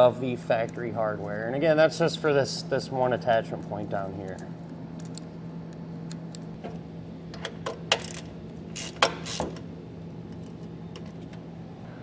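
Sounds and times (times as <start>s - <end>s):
hand ratchet clicking: 7.9s - 9.5s.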